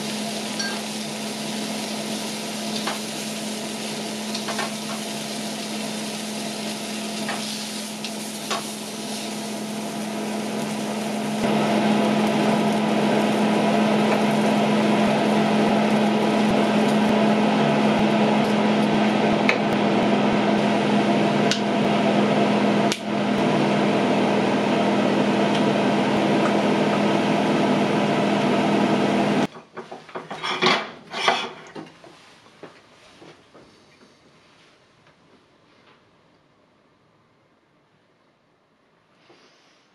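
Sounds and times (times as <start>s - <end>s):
oil sizzling in a skillet: 0.0s - 19.7s.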